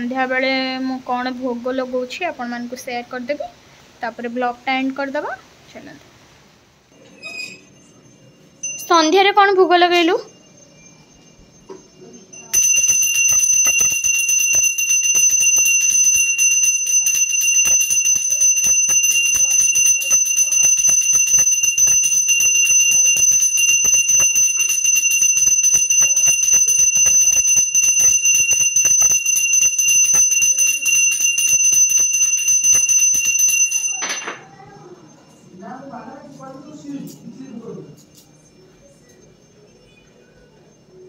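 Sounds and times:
hand bell ringing rapidly: 7.8 - 34.3.

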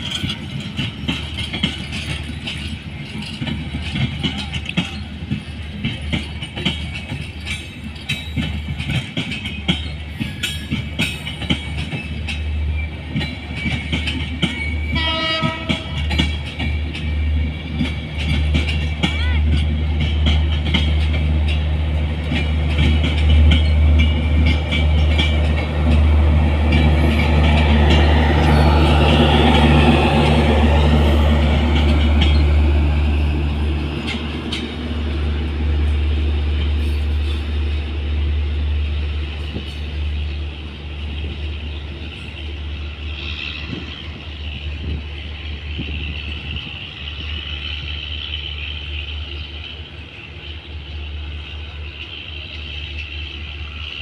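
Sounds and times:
train coaches rolling past: 0.0 - 54.0
wheels clicking over rail joints: 0.0 - 54.0.

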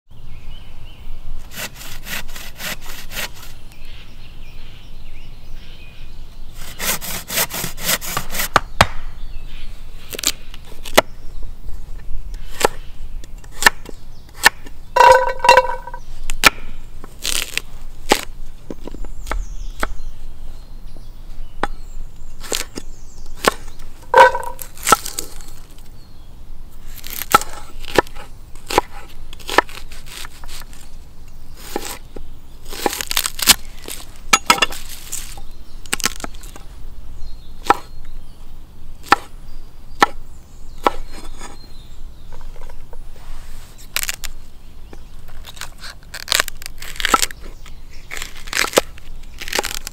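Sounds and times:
hand saw cutting wood: 1.5 - 3.6, 6.6 - 8.6.

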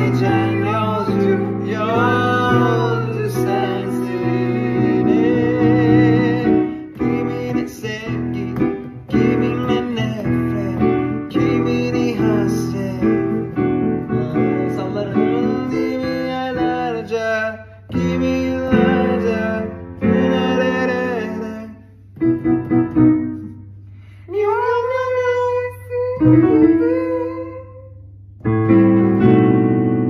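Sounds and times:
person singing with vibrato: 0.0 - 22.7, 24.1 - 28.1
piano accompaniment: 0.0 - 30.0.

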